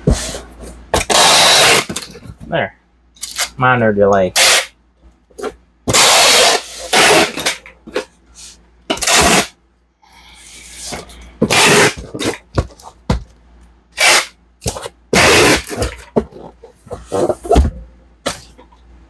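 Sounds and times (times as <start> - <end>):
packing tape ripping from tape gun: 0.9 - 2.1, 4.4 - 4.7, 5.9 - 7.6, 8.9 - 9.6, 11.4 - 12.4, 14.0 - 16.1.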